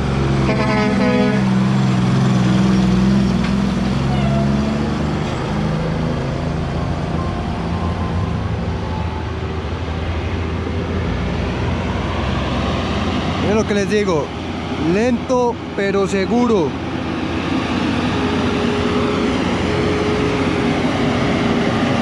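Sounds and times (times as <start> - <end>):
truck diesel engine passing: 0.0 - 22.0
car passing: 1.0 - 15.8.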